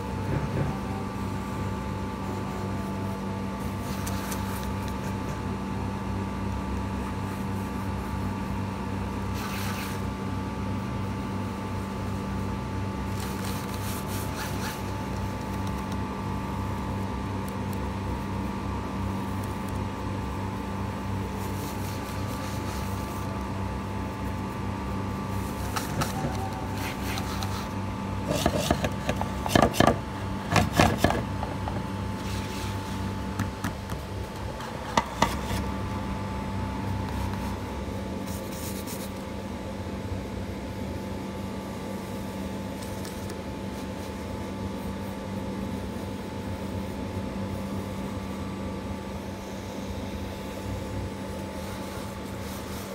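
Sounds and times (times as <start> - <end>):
steady mechanical hum: 0.0 - 52.9
pencil scraping on paper: 25.4 - 33.1.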